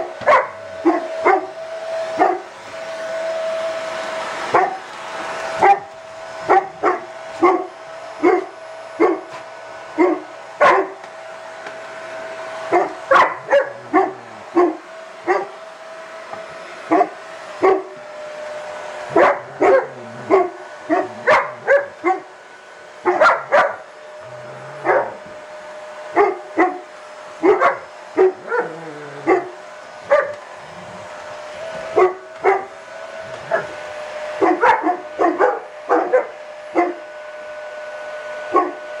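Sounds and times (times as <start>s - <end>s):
dogs barking: 0.0s - 2.5s, 4.5s - 4.9s, 5.6s - 9.4s, 10.0s - 11.1s, 12.6s - 15.6s, 16.9s - 18.0s, 19.1s - 22.4s, 23.0s - 25.2s, 26.1s - 30.8s, 31.9s - 33.8s, 34.4s - 37.0s, 38.6s - 38.8s
vacuum cleaner whine: 0.0s - 39.0s.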